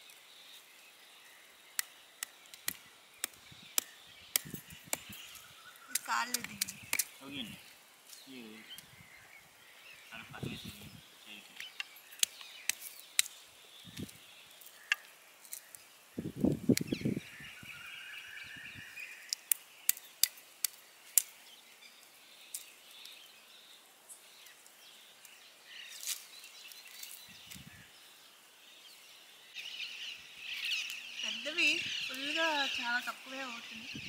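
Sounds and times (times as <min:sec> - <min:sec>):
birds chirping: 0:00.0 - 0:34.0
nuts crackling and popping over fire: 0:00.0 - 0:34.0.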